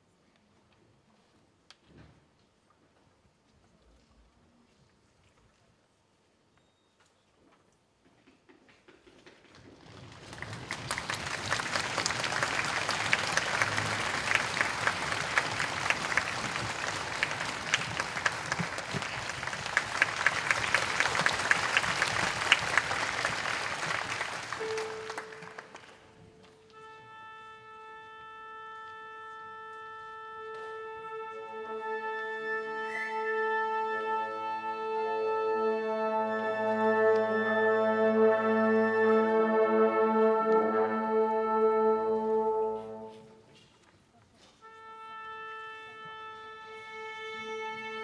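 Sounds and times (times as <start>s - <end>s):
audience applauding: 9.9s - 26.4s
orchestra tuning up: 10.4s - 43.5s
instrument sounding tuning note: 24.6s - 26.2s.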